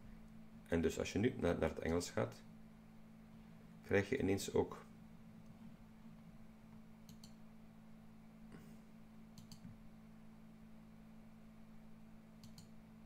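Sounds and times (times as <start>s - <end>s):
faint low electrical hum: 0.0s - 13.0s
computer mouse button clicks: 12.4s - 12.7s.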